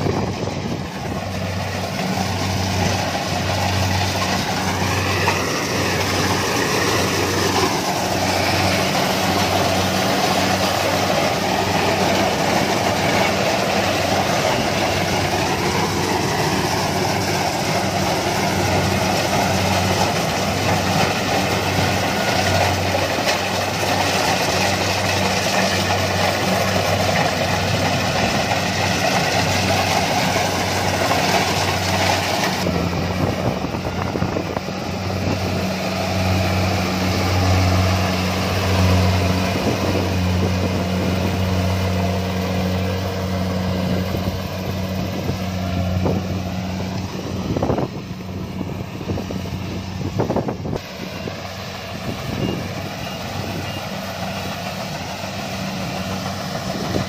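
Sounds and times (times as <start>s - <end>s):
combine harvester engine running: 0.0s - 57.0s.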